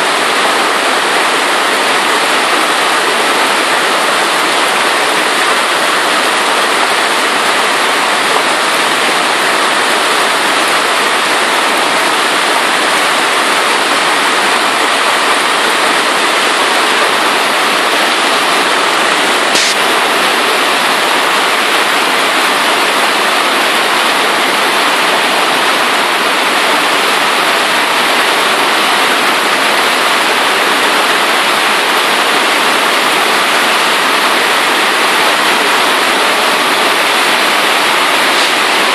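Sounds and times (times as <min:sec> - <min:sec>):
hail pounding street and roofs: 0:00.0 - 0:38.9
sharp click: 0:19.5 - 0:19.8.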